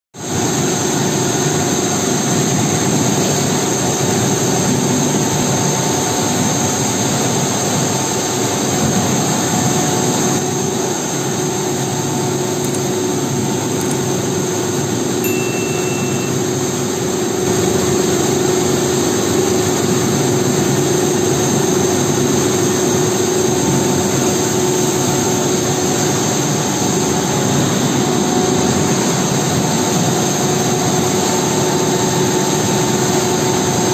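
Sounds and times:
machinery humming and hissing: 0:00.2 - 0:33.9
steady machine tones: 0:13.0 - 0:18.4.

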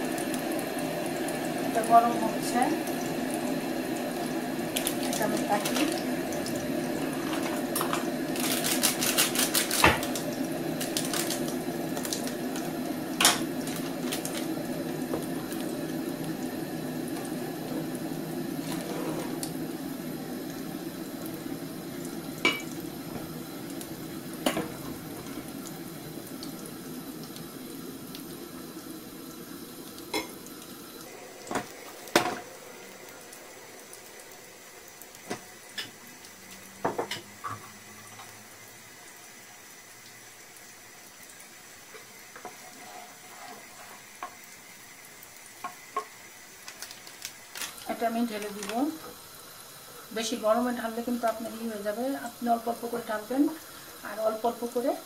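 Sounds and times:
dishes and utensils clinking: 0:07.1 - 0:08.1, 0:22.4 - 0:22.7.

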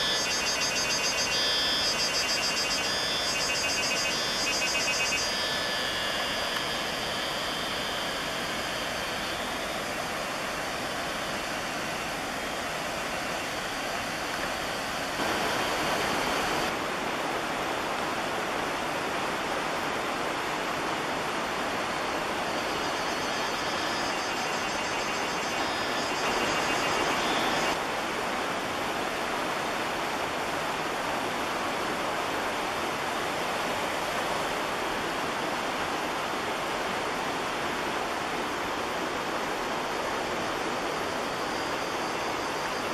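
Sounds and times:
steady rushing noise: 0:00.0 - 0:29.0.

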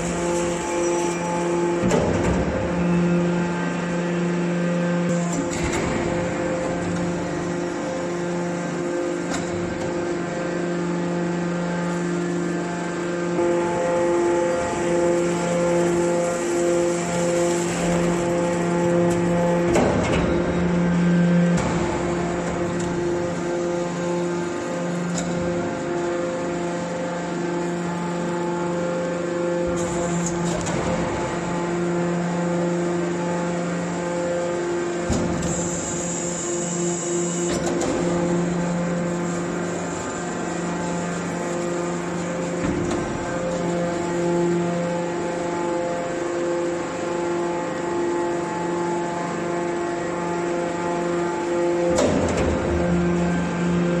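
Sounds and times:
baler motor and pump humming: 0:00.0 - 0:54.0.

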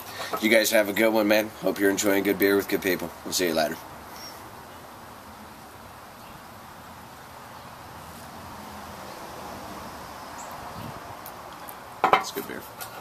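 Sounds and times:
soft outdoor hiss: 0:00.0 - 0:13.0.

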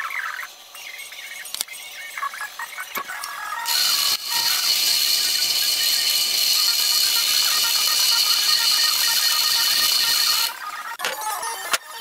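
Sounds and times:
wire brush scouring metal: 0:03.7 - 0:10.6.

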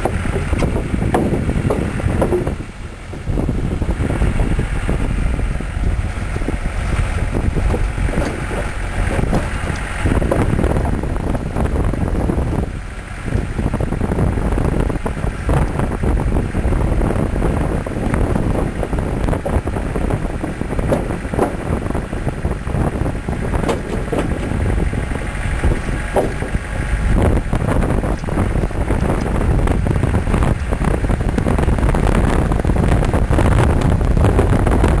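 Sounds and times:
knocks and rattles on wooden boards: 0:00.0 - 0:03.3, 0:06.2 - 0:11.6, 0:20.6 - 0:22.3, 0:23.4 - 0:29.4
vehicle engine and tyres rumbling: 0:00.0 - 0:35.0
wind buffeting microphone: 0:00.0 - 0:35.0.

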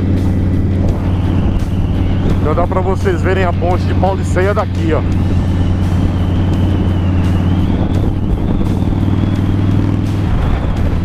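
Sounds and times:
motorcycle engine cruising: 0:00.0 - 0:11.0
wind rushing: 0:00.0 - 0:11.0.

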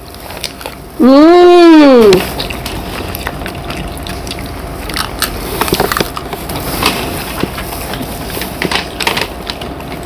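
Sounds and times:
crisp shells crunching: 0:02.2 - 0:09.8.

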